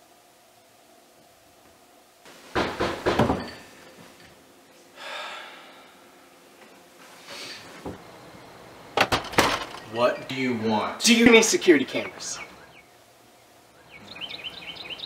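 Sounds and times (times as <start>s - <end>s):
knocks on wooden door: 2.5s - 3.5s.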